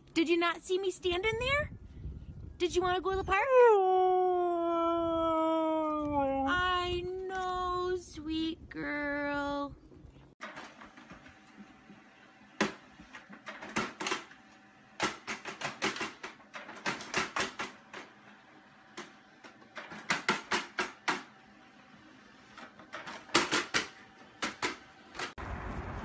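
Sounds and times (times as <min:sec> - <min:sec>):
printer clicking and tapping: 0:15.0 - 0:18.2.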